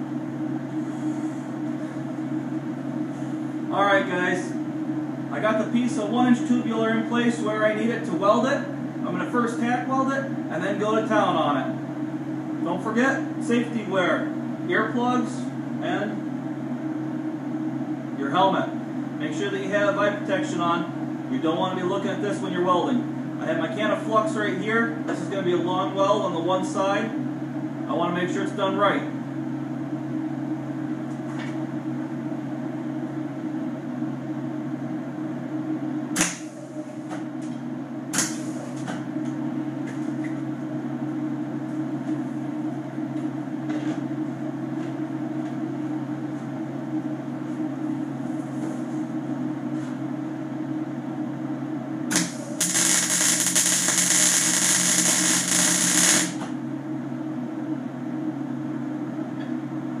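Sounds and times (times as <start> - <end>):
arc welder electrical hum: 0.0 - 60.0
welding arc sizzling: 38.2 - 38.8, 52.1 - 56.6.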